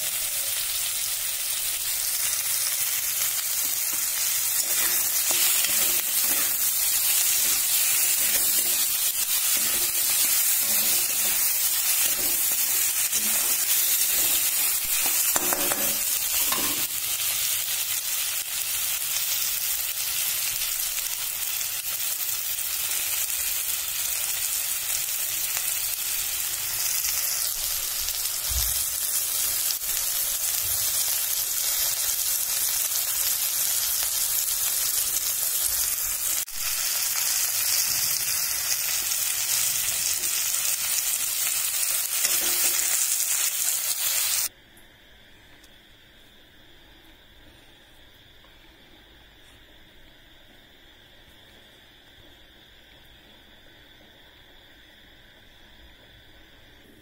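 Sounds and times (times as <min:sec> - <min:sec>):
food sizzling in oil: 0:00.0 - 0:44.5.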